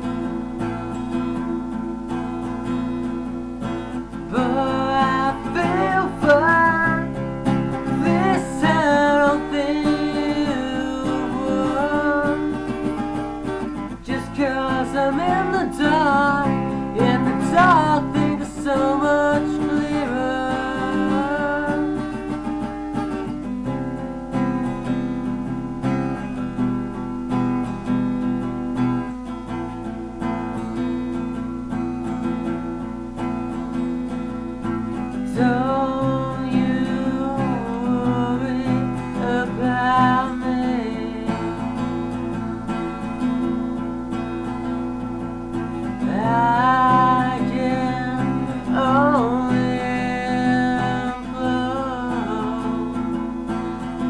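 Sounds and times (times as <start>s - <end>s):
guitar accompaniment: 0.0s - 54.0s
person singing: 4.3s - 12.8s, 14.0s - 22.2s, 35.0s - 42.1s, 46.0s - 54.0s.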